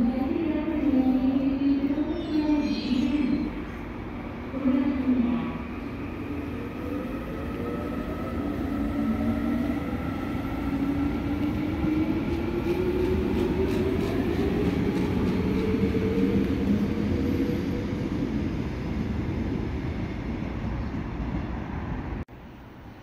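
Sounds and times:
train wheels rumbling on rails: 0:05.1 - 0:22.2.

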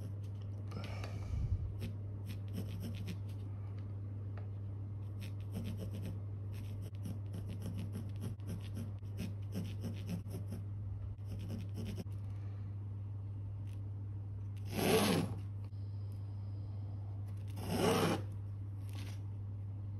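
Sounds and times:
pencil scratching on canvas: 0:00.0 - 0:00.4, 0:01.8 - 0:03.4, 0:05.1 - 0:12.2, 0:14.6 - 0:15.4, 0:17.4 - 0:18.4
steady low hum: 0:00.0 - 0:19.9.

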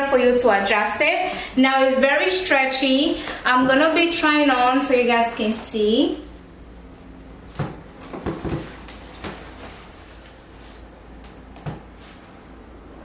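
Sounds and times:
soft knocks and rustles: 0:07.6 - 0:10.2.

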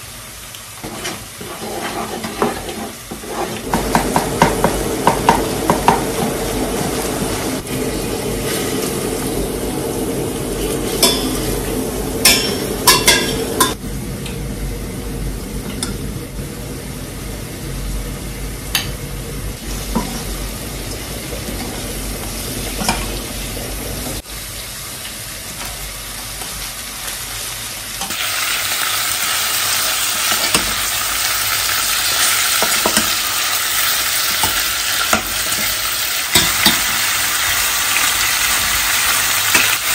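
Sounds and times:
loud hissing sizzle: 0:00.0 - 0:39.9
spatula scraping a pan: 0:00.8 - 0:04.8
meat frying in a pan: 0:19.6 - 0:39.9.

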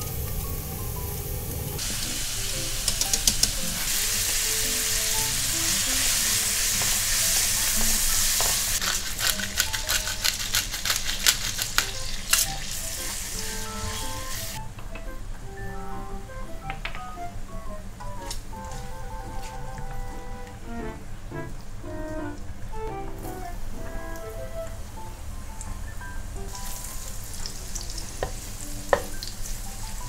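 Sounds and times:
bacon sizzling in a wok: 0:00.0 - 0:14.6, 0:26.5 - 0:30.0
pot of water boiling: 0:00.0 - 0:14.6, 0:26.2 - 0:30.0.

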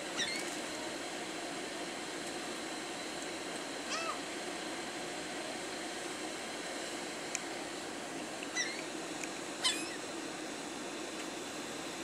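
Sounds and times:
steady background hum: 0:00.0 - 0:12.0
gulls calling: 0:08.4 - 0:08.9, 0:09.6 - 0:10.0.

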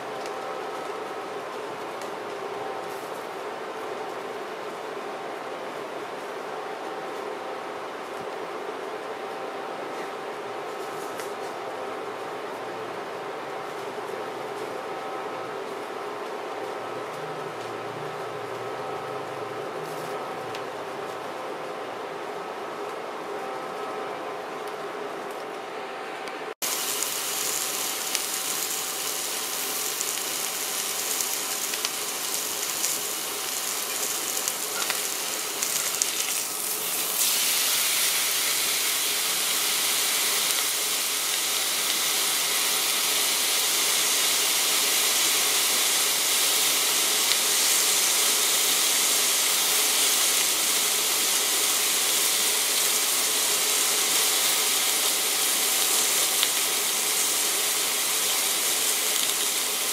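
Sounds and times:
steak sizzling in a grill pan: 0:26.6 - 0:59.9.

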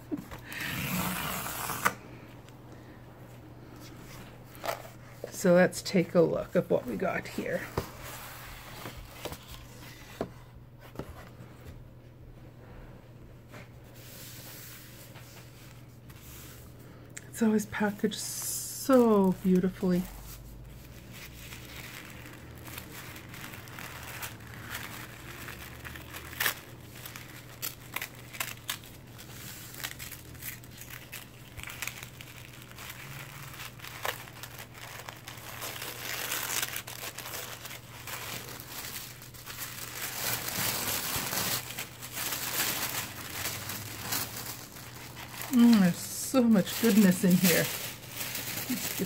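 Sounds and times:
paper wrapping crinkling: 0:06.6 - 0:11.2, 0:18.8 - 0:49.0.

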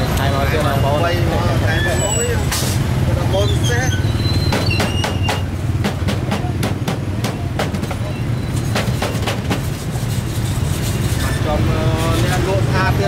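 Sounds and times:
cleaver chopping on wooden board: 0:04.6 - 0:08.0.

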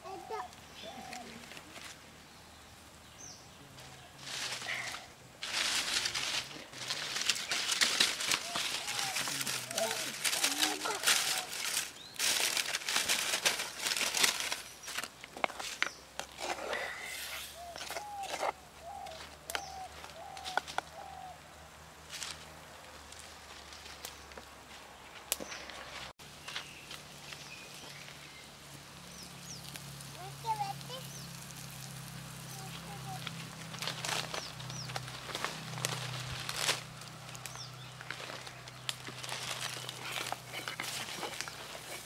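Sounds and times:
crackling hiss of cooking pot: 0:26.3 - 0:42.0
wooden spatula stirring in pot: 0:39.6 - 0:42.0.

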